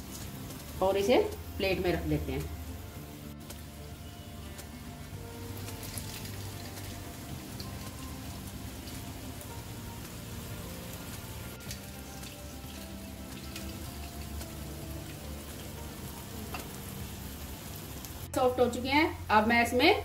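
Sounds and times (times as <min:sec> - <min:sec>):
soft background music: 0:00.0 - 0:20.0
water dripping onto steel plate: 0:05.5 - 0:16.8.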